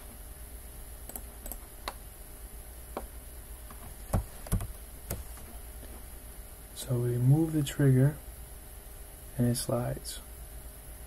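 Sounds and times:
low steady hum: 0.0 - 11.0
computer mouse clicks: 1.1 - 2.0.

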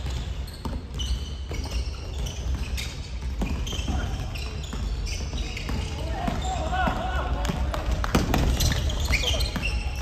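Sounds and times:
shoe squeaks: 0.0 - 6.8, 8.4 - 10.0.

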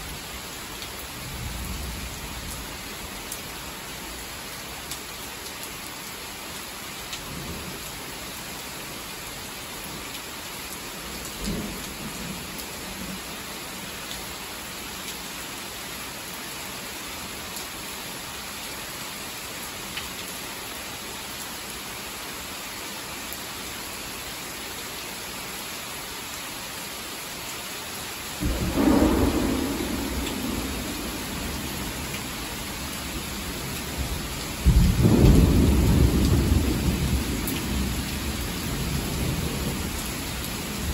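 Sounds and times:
heavy rain: 0.0 - 40.9
thunderclap rumbling: 28.4 - 37.9.

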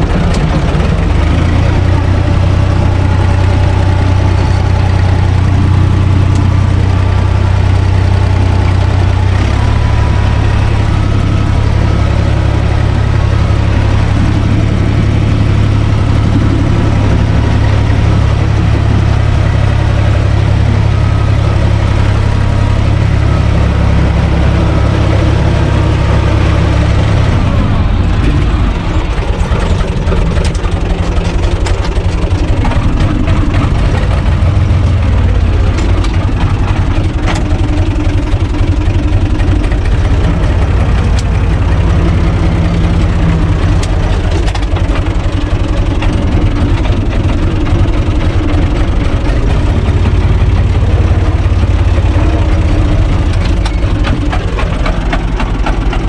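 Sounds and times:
tractor diesel engine running: 0.0 - 56.0
rotary tiller clattering: 28.2 - 56.0.

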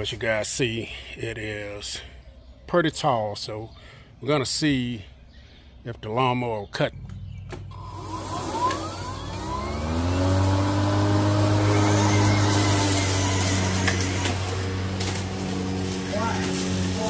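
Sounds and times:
electric lawn mower whining: 7.7 - 17.0.

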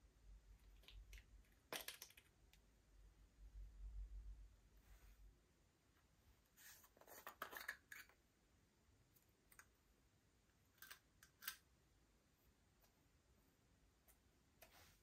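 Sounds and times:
jars clicking and scraping: 7.0 - 8.2.

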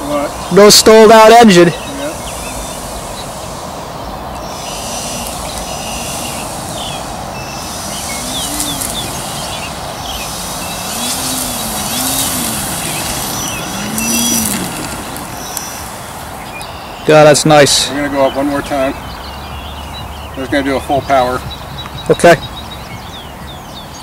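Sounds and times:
steady rushing noise: 0.0 - 24.0
model airplane motor buzzing: 4.5 - 16.0.

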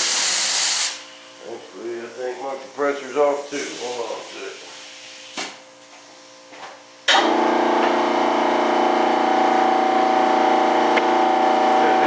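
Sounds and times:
air compressor motor humming: 0.0 - 12.0.

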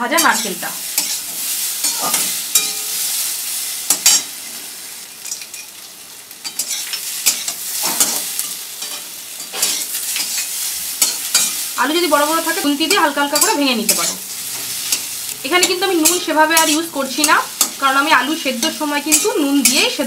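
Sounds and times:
oil sizzling: 0.0 - 20.0
metal spatula scraping pan: 0.2 - 3.2, 6.4 - 11.6.

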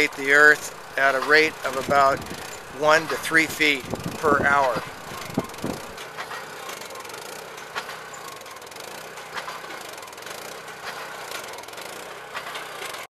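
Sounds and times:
drill bit striking ground: 0.0 - 6.8
drill rig engine running: 0.0 - 13.0.

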